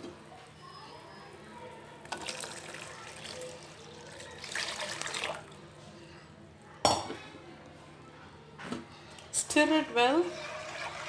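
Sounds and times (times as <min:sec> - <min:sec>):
liquid pouring into a pan: 0:02.0 - 0:05.6, 0:10.3 - 0:11.0.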